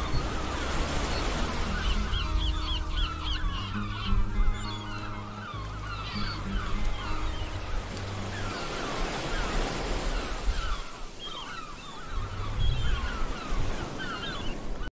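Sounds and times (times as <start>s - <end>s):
low bass notes: 0.0s - 8.4s
ambient music: 0.0s - 10.0s.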